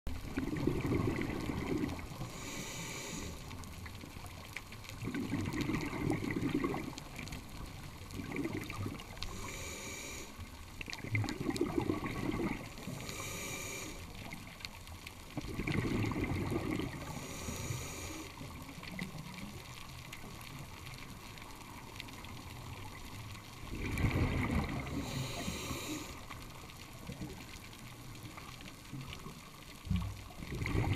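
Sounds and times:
bubbling exhaled air: 0:00.1 - 0:03.7, 0:04.9 - 0:14.6, 0:15.3 - 0:19.2, 0:23.6 - 0:27.5, 0:30.0 - 0:30.9
hissing regulator inhale: 0:02.2 - 0:03.6, 0:09.2 - 0:10.5, 0:12.8 - 0:14.2, 0:17.0 - 0:18.4, 0:24.9 - 0:26.5.

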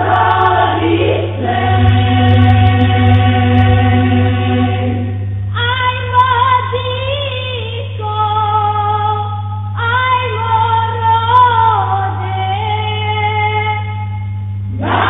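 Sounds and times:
choir singing in harmony: 0:00.0 - 0:05.2, 0:14.7 - 0:15.0
steady low hum: 0:00.0 - 0:15.0.

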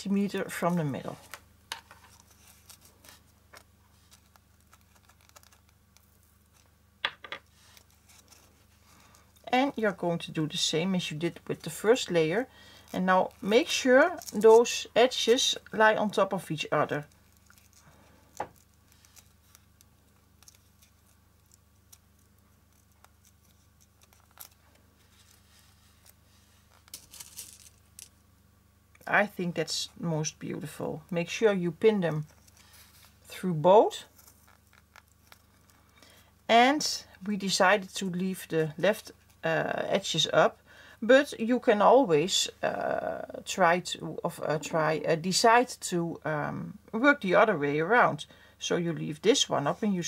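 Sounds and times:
low steady hum: 0:00.0 - 0:50.0
small clicks and rustles: 0:01.2 - 0:09.5, 0:17.0 - 0:28.2, 0:32.2 - 0:33.3, 0:34.0 - 0:36.3.

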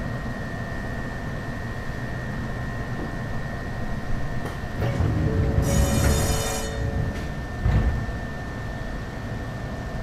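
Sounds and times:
train wheels rumbling: 0:04.8 - 0:08.3
high-pitched whine: 0:04.8 - 0:09.7.

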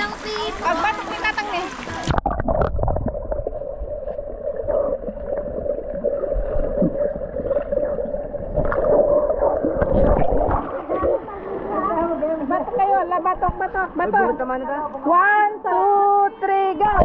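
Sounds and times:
underwater gurgling and knocks: 0:01.9 - 0:11.3.

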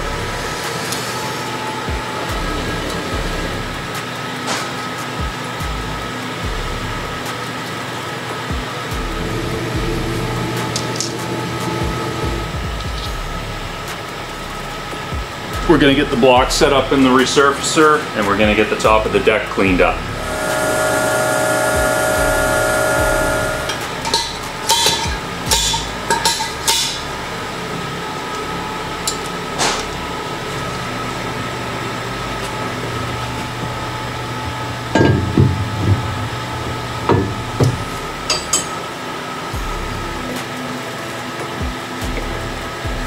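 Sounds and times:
machine hum: 0:00.0 - 0:17.2, 0:17.8 - 0:43.0
metal knocks and clanks: 0:34.8 - 0:38.7.

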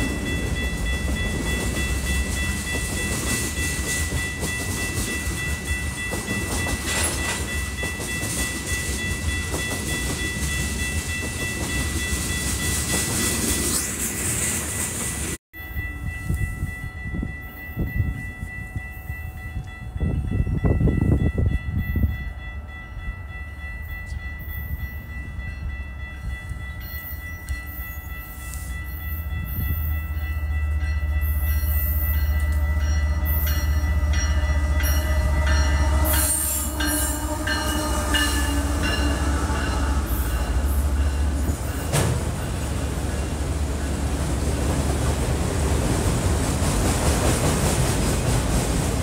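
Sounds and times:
train wheels clicking and knocking: 0:00.0 - 0:13.7, 0:40.2 - 0:49.0
locomotive rumble: 0:27.9 - 0:49.0
train horn: 0:31.0 - 0:41.7.

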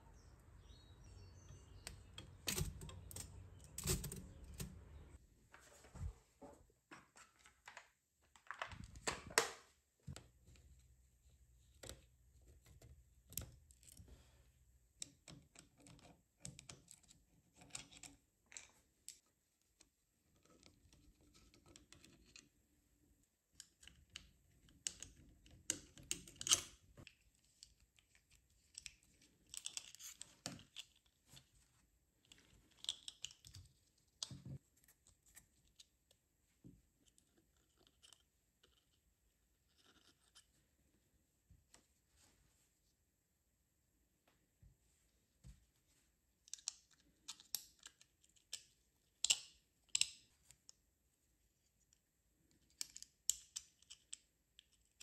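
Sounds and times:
typewriter mechanism clicks: 0:02.2 - 0:04.8.

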